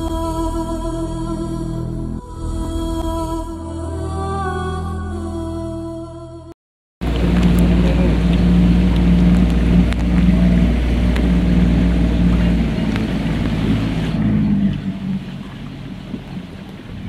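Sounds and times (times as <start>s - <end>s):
boat motor running: 7.0s - 17.0s
rushing water: 7.0s - 17.0s.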